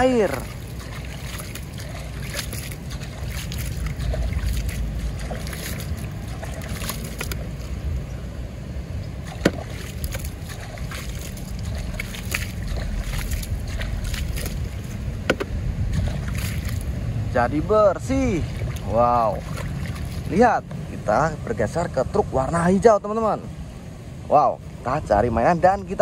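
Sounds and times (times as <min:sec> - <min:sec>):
water splashing and sloshing: 0:00.0 - 0:22.9
small plastic knocks: 0:15.3 - 0:15.5.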